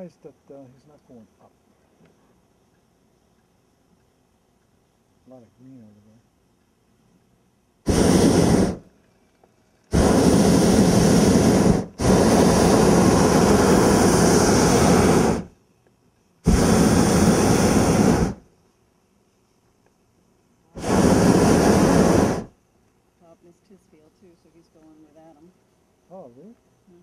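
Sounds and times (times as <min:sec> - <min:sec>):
propane burner firing: 0:07.8 - 0:08.9, 0:09.9 - 0:15.5, 0:16.4 - 0:18.5, 0:20.8 - 0:22.5.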